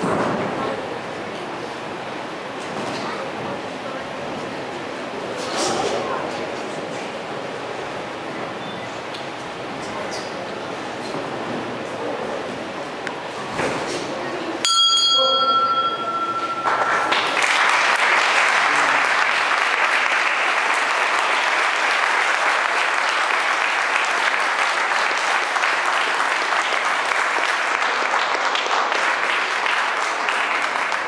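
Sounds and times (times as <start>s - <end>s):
boxing bell ringing: 14.6s - 17.1s
spectators applauding: 16.4s - 31.0s.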